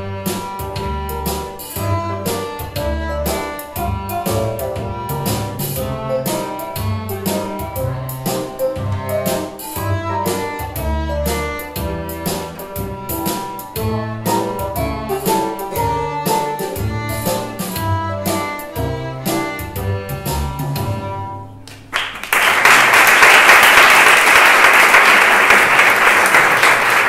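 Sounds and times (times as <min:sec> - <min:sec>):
piano accompaniment: 0:00.0 - 0:21.6
viola tune: 0:00.0 - 0:21.6
audience applause: 0:21.9 - 0:27.0.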